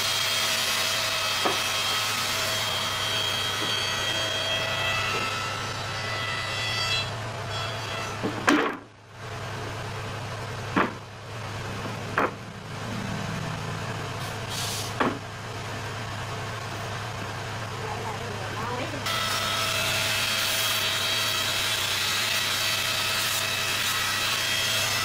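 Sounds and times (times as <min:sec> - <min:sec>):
low machine hum: 0:01.6 - 0:20.3
wooden knocks: 0:10.7 - 0:11.0, 0:11.8 - 0:12.4
power tool whine: 0:18.6 - 0:25.0.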